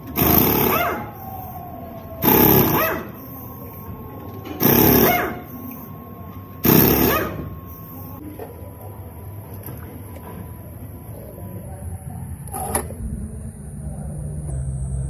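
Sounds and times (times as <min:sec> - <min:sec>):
pneumatic impact wrench bursts: 0:00.0 - 0:01.6, 0:02.2 - 0:03.4, 0:04.6 - 0:05.7, 0:06.6 - 0:07.9.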